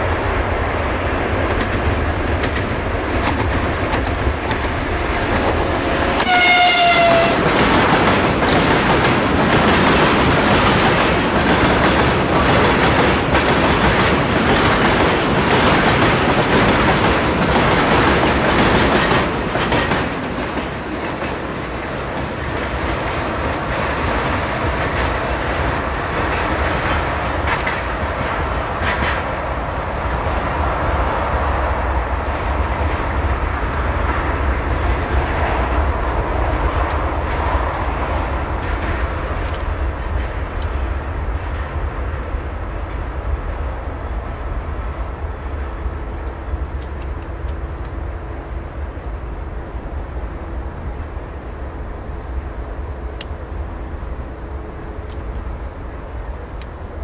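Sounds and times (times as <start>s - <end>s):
diesel locomotive engine rumbling: 0.0s - 57.0s
train wheels clattering: 1.4s - 29.5s
train horn blast: 6.1s - 7.7s.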